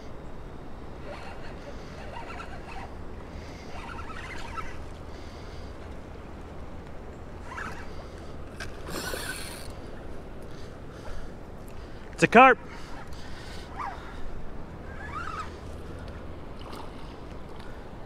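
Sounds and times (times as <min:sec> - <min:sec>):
spillway water rumbling: 0:00.0 - 0:18.0
short scratchy bursts: 0:01.0 - 0:02.9.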